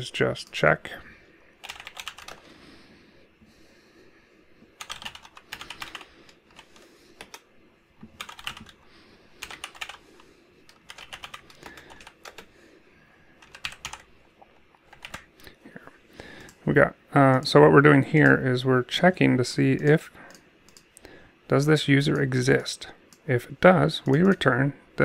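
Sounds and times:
computer keyboard typing: 1.6s - 2.4s, 4.8s - 8.8s, 9.4s - 10.0s, 10.6s - 12.5s, 13.4s - 14.1s, 14.8s - 15.4s, 19.8s - 20.9s, 24.0s - 24.5s.

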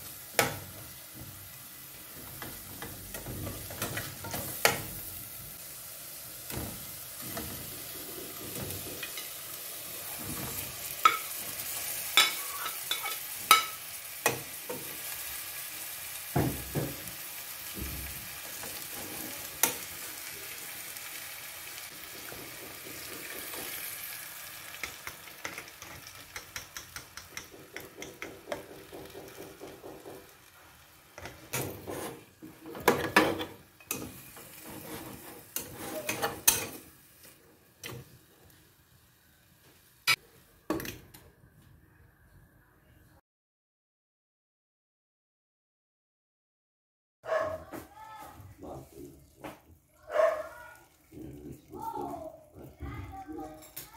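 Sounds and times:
chicken sizzling in pot: 0.0s - 41.1s, 48.2s - 53.9s
metal spatula scraping pot: 7.2s - 9.4s, 10.5s - 14.8s, 18.5s - 20.0s, 31.2s - 38.0s.

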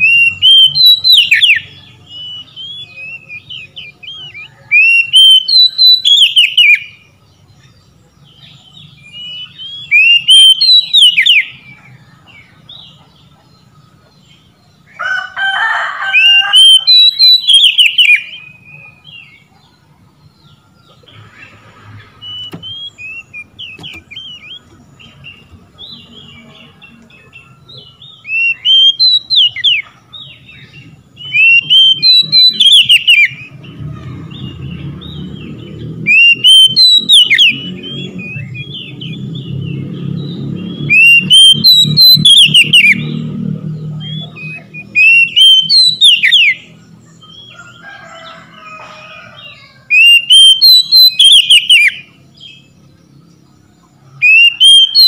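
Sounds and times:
bird singing whistled phrases: 0.0s - 7.0s, 8.4s - 11.7s, 16.2s - 19.3s, 22.2s - 26.5s, 27.1s - 29.9s, 31.2s - 33.6s, 36.1s - 39.6s, 40.3s - 43.2s, 43.9s - 46.8s, 49.9s - 52.1s, 54.2s - 55.0s.

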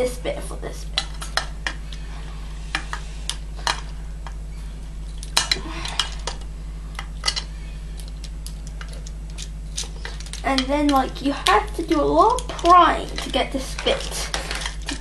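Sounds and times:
low hum: 0.0s - 15.0s
plastic parts clicking and clattering: 5.2s - 15.0s.

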